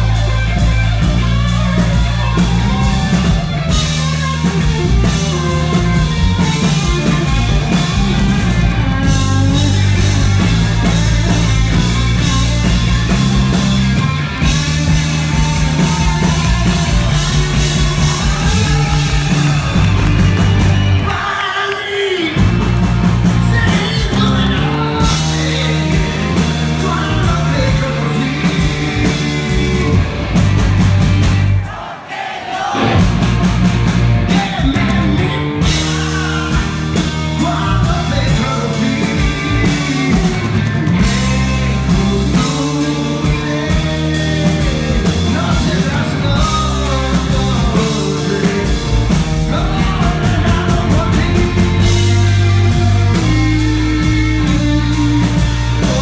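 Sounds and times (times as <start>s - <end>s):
electric guitar: 0.0s - 21.2s, 22.3s - 31.6s, 32.8s - 56.0s
bass guitar: 0.0s - 21.3s, 22.2s - 31.7s, 32.8s - 56.0s
drums: 0.0s - 56.0s
man singing: 5.0s - 12.4s, 21.0s - 22.5s, 23.3s - 30.2s, 34.3s - 56.0s.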